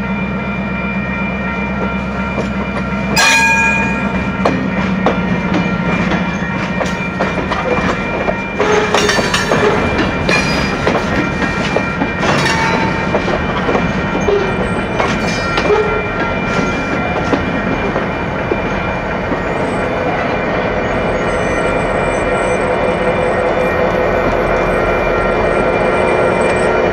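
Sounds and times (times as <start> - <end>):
diesel locomotive engines: 0.0 - 26.9
freight wagon wheels clanking: 3.2 - 18.7.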